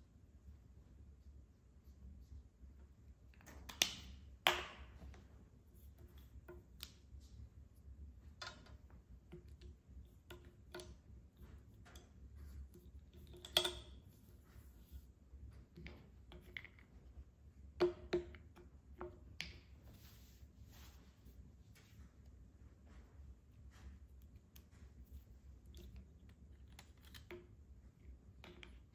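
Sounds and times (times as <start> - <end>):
wooden blocks clacking on table: 3.6 - 5.2, 8.3 - 14.1, 15.6 - 19.8, 25.6 - 28.9.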